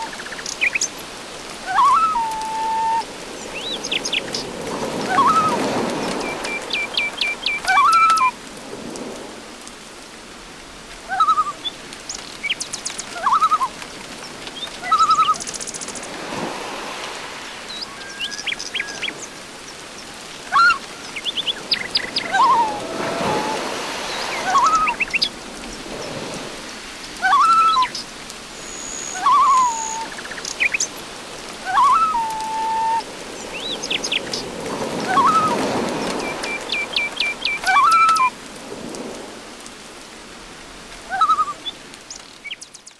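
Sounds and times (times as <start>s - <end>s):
birds calling and chirping: 3.4s - 8.3s, 11.2s - 16.2s, 17.6s - 26.2s, 28.6s - 31.0s, 31.7s - 38.3s.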